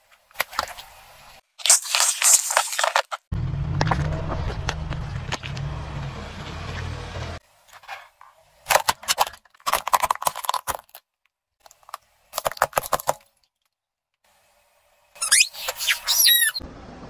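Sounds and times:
objects cracking under car tyre: 1.6 - 5.8, 8.7 - 13.7.

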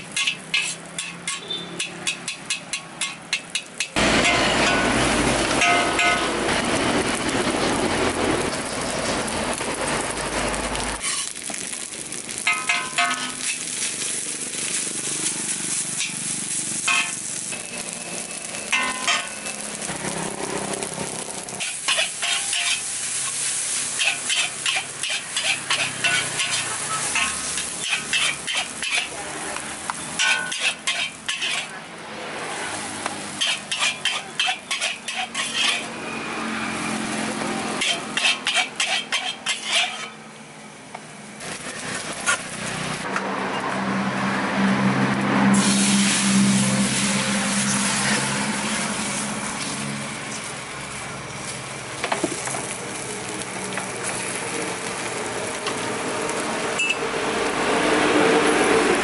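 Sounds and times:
metal spatula scraping a wok: 0.0 - 9.3, 9.9 - 40.2, 41.6 - 43.9, 45.4 - 50.5
rice sizzling: 0.0 - 40.2, 41.3 - 59.0
loud rushing noise: 42.6 - 50.3, 55.9 - 59.0.

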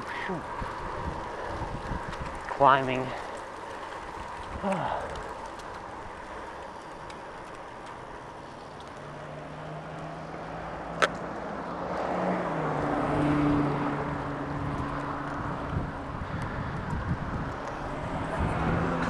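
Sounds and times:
wind noise: 0.0 - 7.6, 12.0 - 19.0
bicycle tyre noise: 0.0 - 19.0
motor vehicle passing: 0.0 - 19.0.

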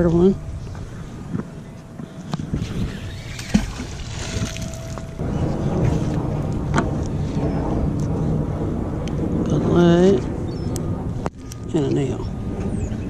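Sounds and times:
wind on microphone: 0.0 - 13.0
water lapping against dock: 1.2 - 6.8.

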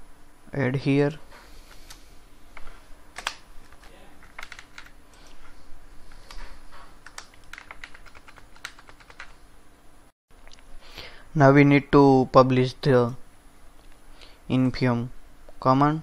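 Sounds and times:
computer keyboard typing: 3.2 - 5.0, 7.0 - 9.4.

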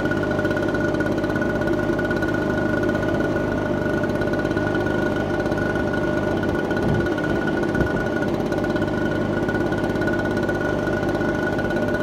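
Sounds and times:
engine drone: 0.0 - 12.0.

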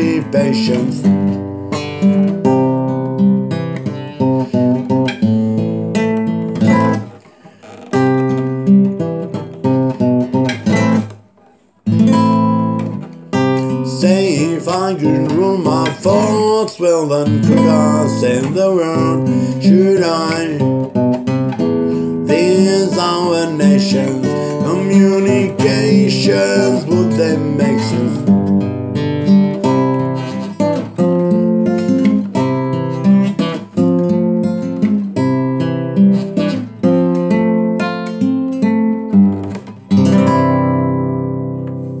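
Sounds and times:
person singing: 0.0 - 1.5, 13.4 - 21.0, 21.7 - 28.6
acoustic guitar chords: 0.0 - 42.0.

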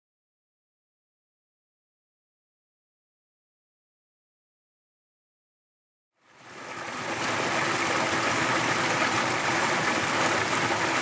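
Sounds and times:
stream water swirling: 6.2 - 11.0.

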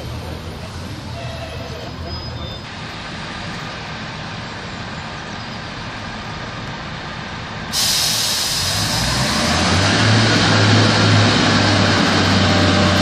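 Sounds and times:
train diesel engine rumble: 0.0 - 13.0
loud hiss: 7.7 - 9.7.

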